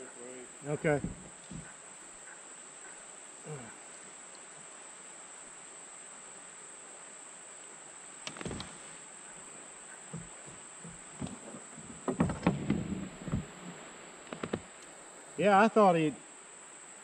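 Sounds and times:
insect chorus: 0:00.0 - 0:17.0
knocks and clicks: 0:10.9 - 0:13.5.

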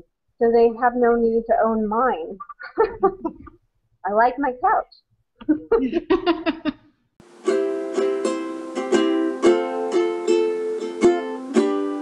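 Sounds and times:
plucked string melody: 0:07.2 - 0:12.0.

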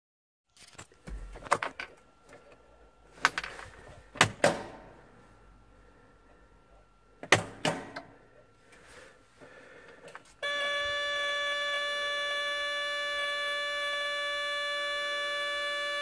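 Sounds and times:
faint steady high tone: 0:10.4 - 0:16.0.

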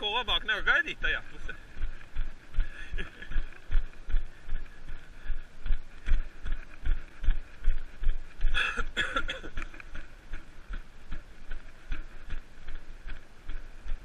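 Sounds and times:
footsteps on grass: 0:00.0 - 0:14.0.

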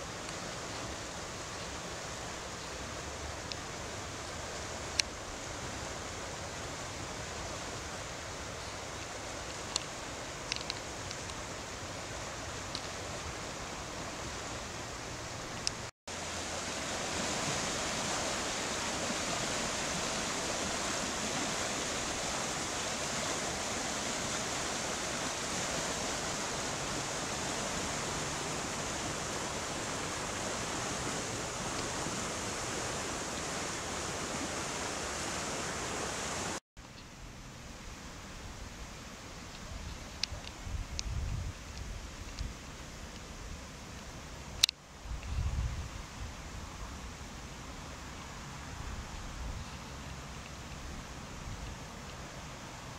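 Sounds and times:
floodwater rushing through creek: 0:00.0 - 0:36.6.

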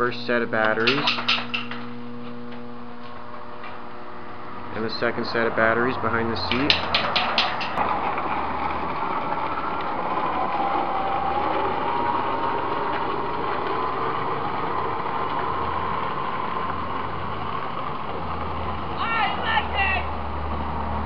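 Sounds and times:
electric drive whine: 0:00.0 - 0:21.0.

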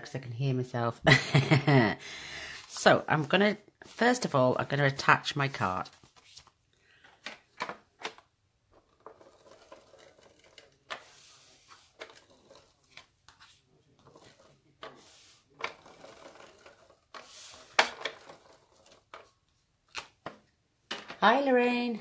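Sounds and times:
paper rustling: 0:05.8 - 0:07.0, 0:08.8 - 0:19.3.

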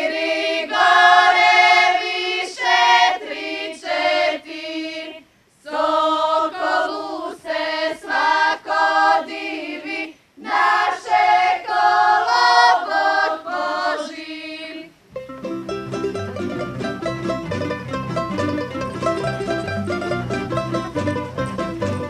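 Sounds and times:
group singing unaccompanied: 0:00.0 - 0:15.0
plucked strings dance tune: 0:15.1 - 0:22.0.

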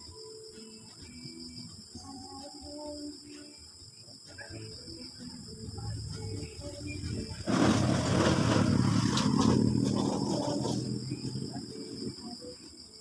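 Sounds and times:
crickets chirping: 0:00.0 - 0:13.0
loud rough rushing noise: 0:07.0 - 0:12.2.

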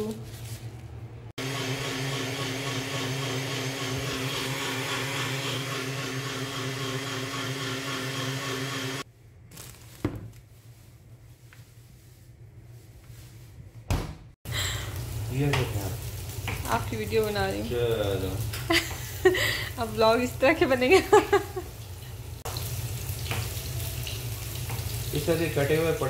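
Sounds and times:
electric blender motor: 0:01.4 - 0:09.0.

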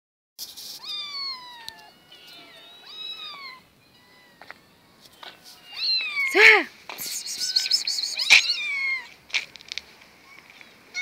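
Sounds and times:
cat meowing: 0:00.7 - 0:06.6, 0:07.2 - 0:09.2.

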